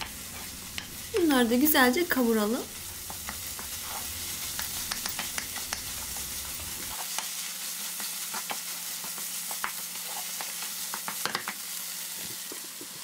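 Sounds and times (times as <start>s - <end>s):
spatula scraping a pan: 0.0s - 1.0s, 3.0s - 7.3s
meat sizzling in a pan: 0.0s - 13.0s.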